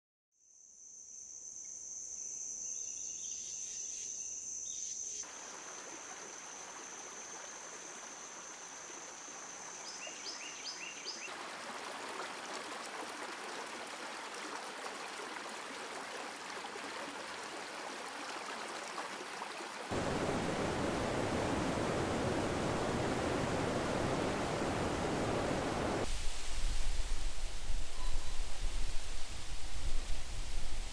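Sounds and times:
river flowing: 5.3s - 9.8s, 11.3s - 26.7s
waterfall roar: 19.9s - 26.1s.

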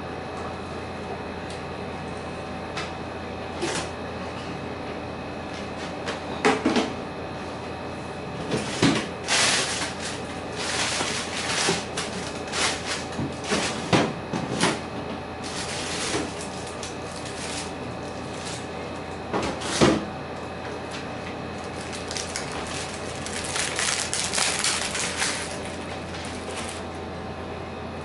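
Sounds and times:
rustling of handled objects: 21.7s - 26.8s.

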